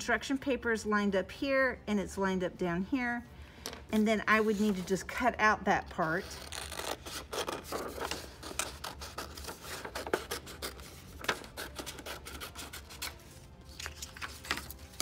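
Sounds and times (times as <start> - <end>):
scissors cutting paper: 6.2 - 15.0.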